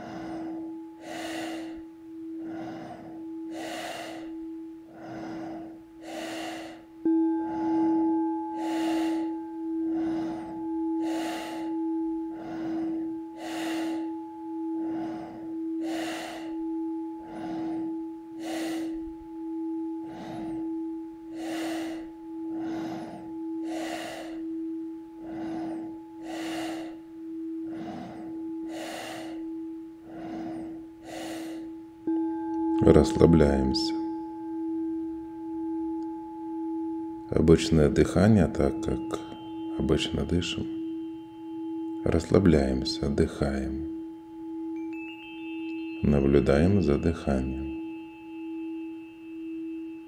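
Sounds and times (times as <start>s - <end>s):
forceful nasal breathing: 0.0s - 37.2s
singing bowl tone: 0.0s - 50.0s.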